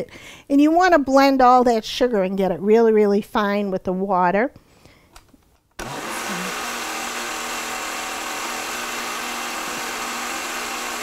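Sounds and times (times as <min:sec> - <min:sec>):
blender running: 0:05.8 - 0:11.0.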